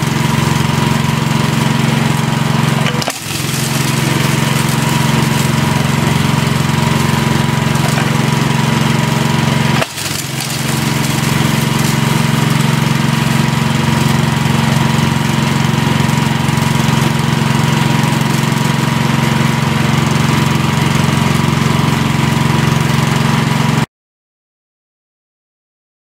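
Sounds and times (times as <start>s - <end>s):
engine drone: 0.0s - 23.8s
rock being milled: 2.7s - 14.7s.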